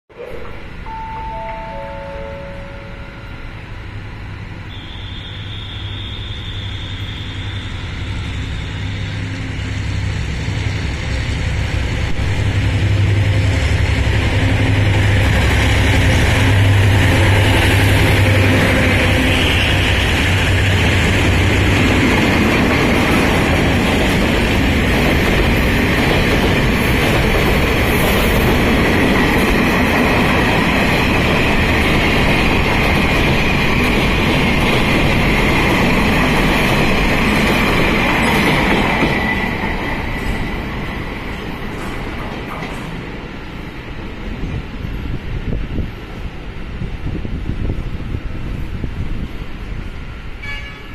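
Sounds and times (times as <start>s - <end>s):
train wheels on rails: 0.3s - 50.8s
high wheel squeal: 4.7s - 9.3s.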